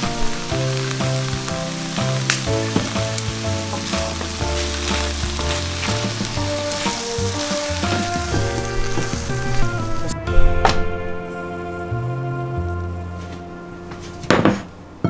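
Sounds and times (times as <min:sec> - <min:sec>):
food sizzling in a frying pan: 0:00.0 - 0:09.6
background music: 0:00.0 - 0:15.0.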